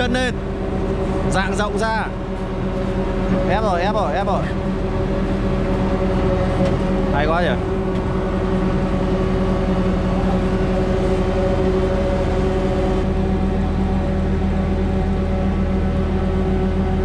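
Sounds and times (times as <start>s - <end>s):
engine and hydraulics humming: 0.0s - 17.0s.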